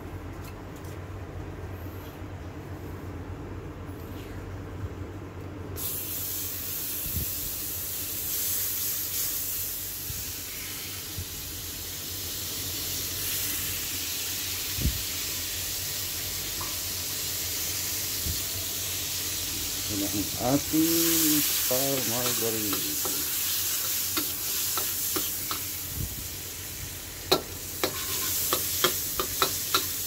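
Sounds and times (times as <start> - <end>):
margarine sizzling in a wok: 5.8 - 30.0
spoon tapping wok: 22.2 - 25.7, 27.3 - 30.0.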